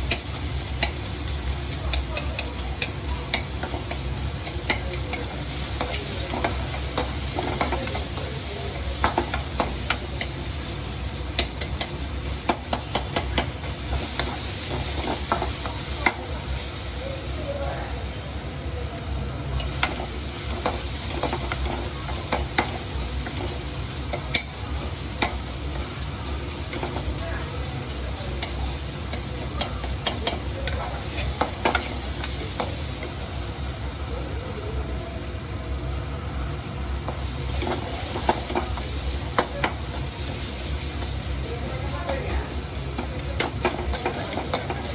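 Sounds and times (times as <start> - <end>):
noodles sizzling: 0.0 - 44.9.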